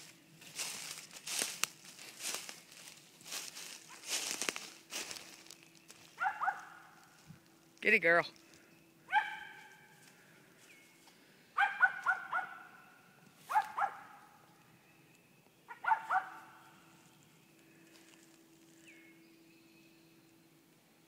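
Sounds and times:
dog barking: 6.2s - 7.0s, 9.1s - 9.7s, 11.6s - 12.8s, 13.5s - 14.3s, 15.7s - 16.6s.

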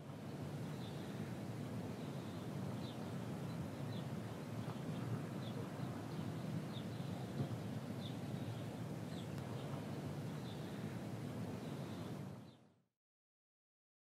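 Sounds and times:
low background rumble: 0.0s - 12.8s.

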